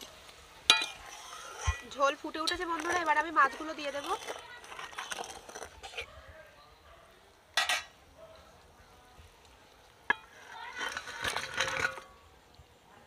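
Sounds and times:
metal bowl clink: 0.7s - 1.0s, 7.6s - 8.0s.

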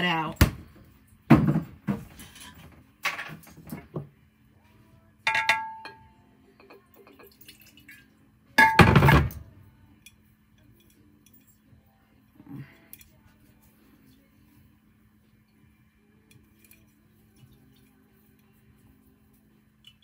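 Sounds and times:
low steady hum: 0.0s - 20.0s
glassware clinking: 5.3s - 7.5s.

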